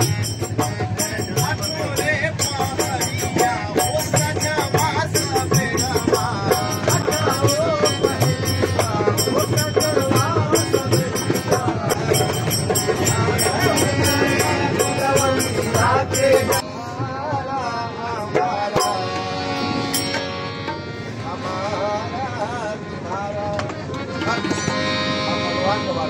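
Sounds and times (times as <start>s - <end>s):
hand percussion beat: 0.0s - 16.6s, 18.4s - 20.8s
keyboard melody: 17.9s - 26.0s.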